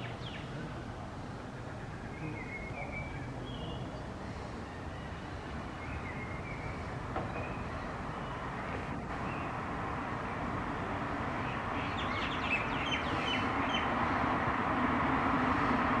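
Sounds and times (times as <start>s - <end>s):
road traffic noise: 0.0s - 16.0s
vehicle approaching: 0.0s - 16.0s
high bird chirps: 1.7s - 8.5s, 11.4s - 13.9s.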